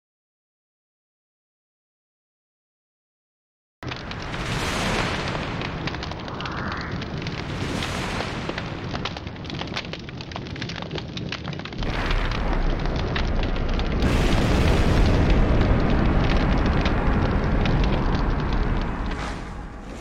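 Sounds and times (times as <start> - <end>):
fire crackling and popping: 3.8 - 20.0
deep rumbling blast: 3.9 - 10.3, 11.7 - 20.0.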